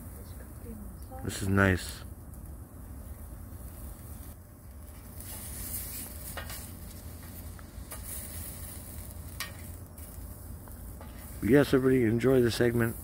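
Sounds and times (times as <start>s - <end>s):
sausages sizzling: 3.2s - 13.0s.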